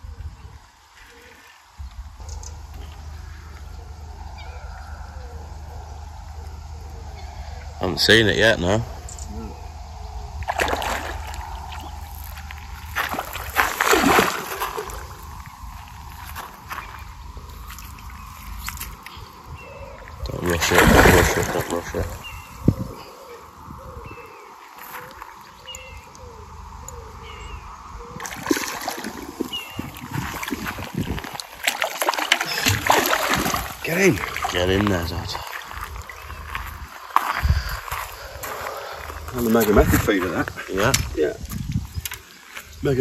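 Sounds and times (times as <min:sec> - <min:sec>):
fish splashing at the surface: 0:10.4 - 0:16.1, 0:20.4 - 0:22.2, 0:28.2 - 0:34.8.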